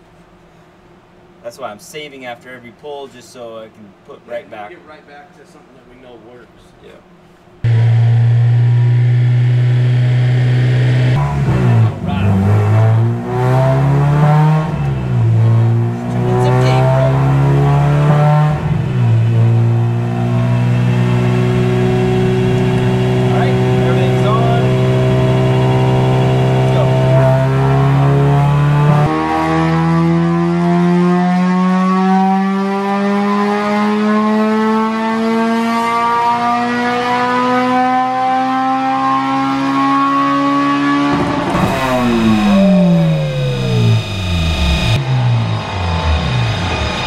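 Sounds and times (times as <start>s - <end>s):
car engine running at steady revs: 7.6s - 29.1s, 41.1s - 47.0s.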